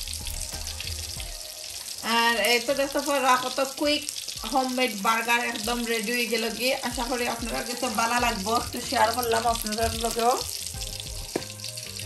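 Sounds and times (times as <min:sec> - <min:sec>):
melodic background music: 0:00.0 - 0:03.6, 0:06.8 - 0:12.0.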